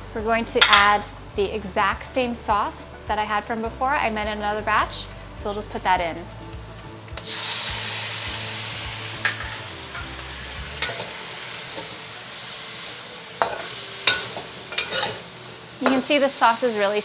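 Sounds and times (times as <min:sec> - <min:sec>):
food sizzling in a wok: 0:00.0 - 0:17.0
metal ladle clicking against wok: 0:13.4 - 0:15.2.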